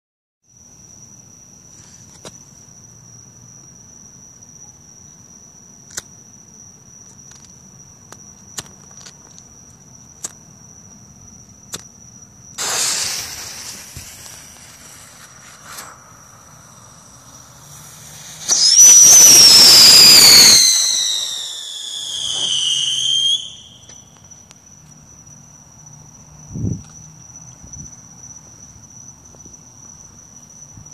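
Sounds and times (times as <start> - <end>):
firework fuse hissing: 12.6 - 24.0
shrill firework whistle: 12.6 - 24.3
steady high-pitched tone: 13.3 - 22.8.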